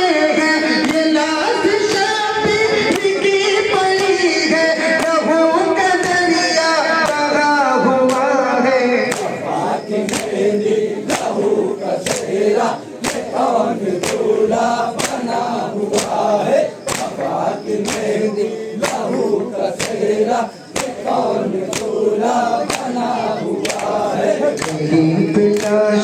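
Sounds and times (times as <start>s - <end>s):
men chanting: 0.0s - 26.0s
hands slapping chests: 6.0s - 6.3s, 7.0s - 7.3s, 8.0s - 8.3s, 9.1s - 9.4s, 10.0s - 24.8s.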